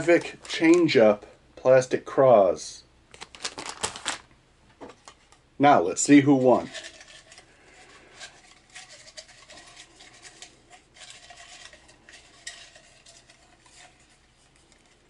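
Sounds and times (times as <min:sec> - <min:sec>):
paper slips rattling in a cup: 0:00.0 - 0:01.0, 0:03.1 - 0:04.2, 0:06.0 - 0:15.0.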